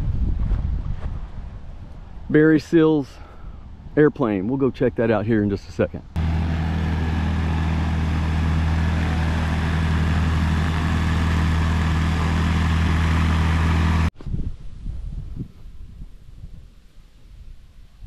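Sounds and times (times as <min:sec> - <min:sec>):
light aircraft engine and propeller: 0:06.2 - 0:14.1.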